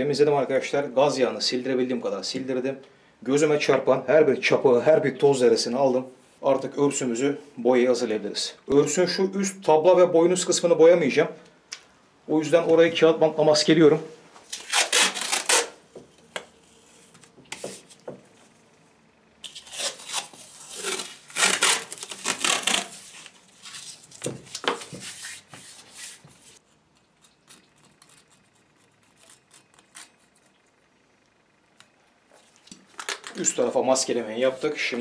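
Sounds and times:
masking tape ripping off roll: 14.5s - 15.8s, 19.4s - 25.5s
utility knife scratching tape: 14.5s - 15.8s, 19.4s - 23.3s, 24.5s - 30.6s.

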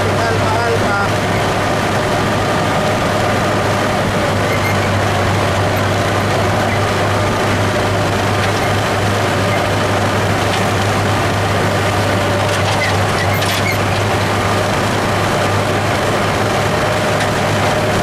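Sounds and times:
tractor engine running: 0.0s - 18.0s.

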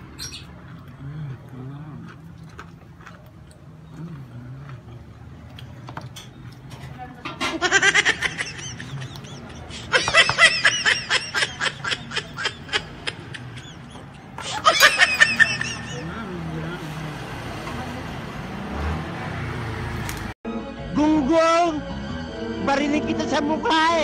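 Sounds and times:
quiet chewing with clicks: 0.4s - 7.1s
high-pitched laughter: 7.5s - 16.2s.

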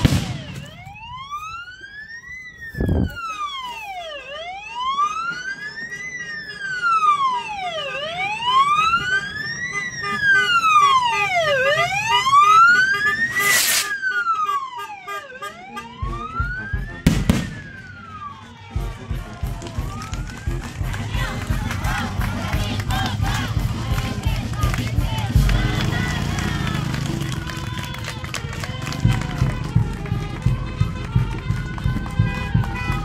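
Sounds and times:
firework rockets banging: 0.0s - 0.8s, 13.3s - 13.9s
siren wailing: 0.0s - 22.1s.

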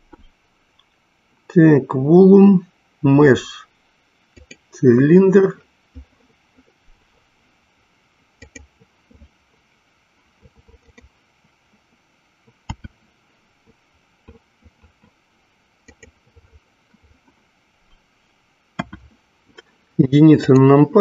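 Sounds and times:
faint hiss: 0.0s - 21.0s
mouse and keyboard clicks: 8.4s - 8.7s, 12.7s - 13.0s, 15.8s - 16.5s.

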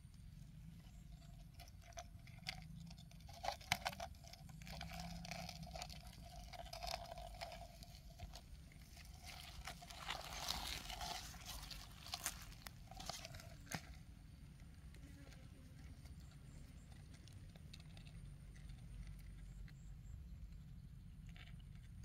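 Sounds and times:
hands rustling dry plant debris: 5.7s - 14.9s.

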